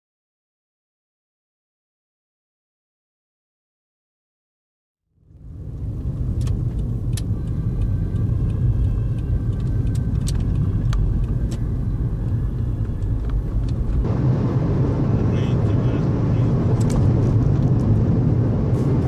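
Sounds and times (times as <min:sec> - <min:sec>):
car road and engine rumble: 0:05.1 - 0:19.0
small clicks and rattles: 0:06.4 - 0:11.7.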